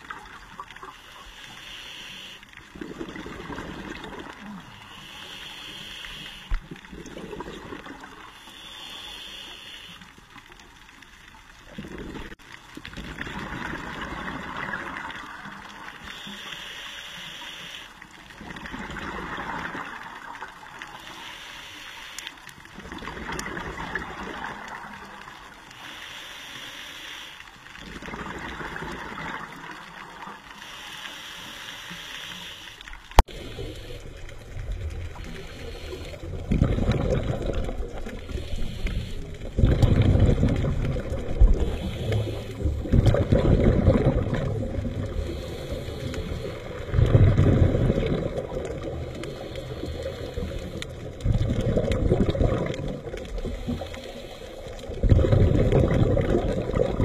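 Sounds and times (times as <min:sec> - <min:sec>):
regulator inhale hiss: 0:00.9 - 0:02.6, 0:04.7 - 0:06.7, 0:08.2 - 0:10.3, 0:16.0 - 0:18.1, 0:20.9 - 0:22.4, 0:25.7 - 0:27.7, 0:30.2 - 0:34.4, 0:35.2 - 0:36.3, 0:38.1 - 0:39.5, 0:41.4 - 0:42.9, 0:45.1 - 0:47.0, 0:49.1 - 0:51.0, 0:53.4 - 0:55.0
exhaled air bubbling: 0:02.6 - 0:05.2, 0:06.5 - 0:08.4, 0:11.6 - 0:16.0, 0:18.3 - 0:20.9, 0:22.7 - 0:25.5, 0:27.8 - 0:30.4, 0:33.0 - 0:57.0.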